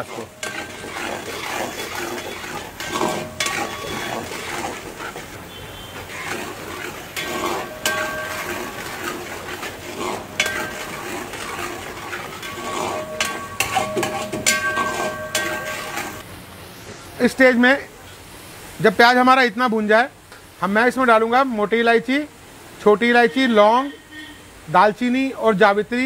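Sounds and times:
spatula scraping and clanking on pan: 0.0 - 16.2
onions sizzling in oil: 0.0 - 16.3.

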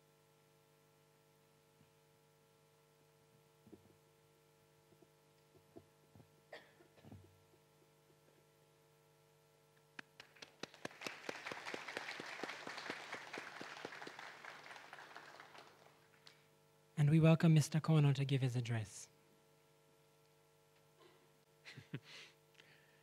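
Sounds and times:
audience applause: 10.2 - 16.3.

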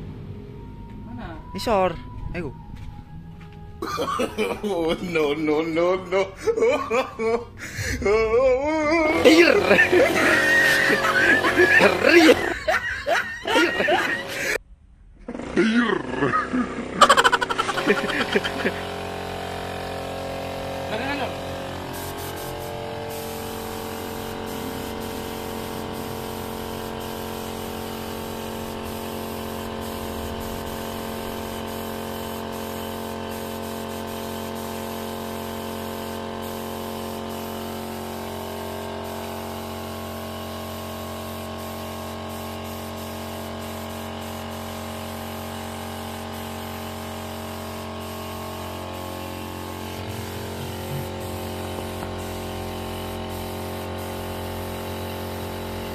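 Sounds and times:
machine hum: 0.0 - 31.8, 47.2 - 53.9
spray gun hissing: 9.1 - 14.6, 17.0 - 55.9.

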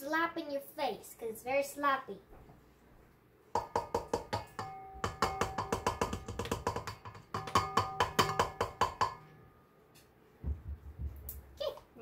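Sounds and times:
spoon knocking on metal bowl: 3.6 - 9.4.

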